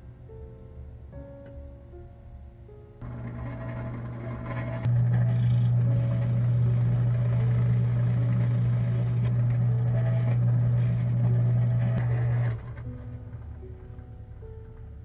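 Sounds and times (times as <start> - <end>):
drill bit boring into wood: 3.0 - 12.8
drill press motor humming: 3.0 - 14.0.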